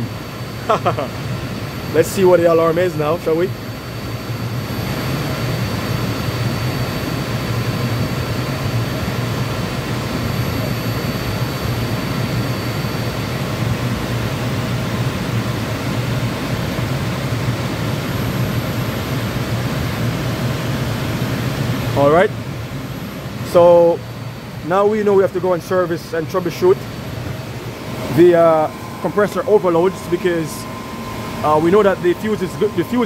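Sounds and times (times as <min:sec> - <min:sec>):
air conditioner fan roaring: 0:00.0 - 0:33.0
low hum: 0:26.6 - 0:33.0.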